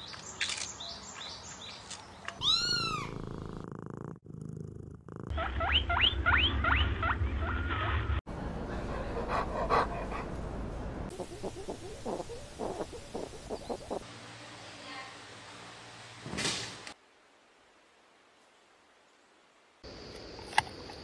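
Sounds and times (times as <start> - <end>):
high animal squeaks: 2.4 - 3.2, 11.1 - 14.0
rising and falling animal call: 11.1 - 14.0.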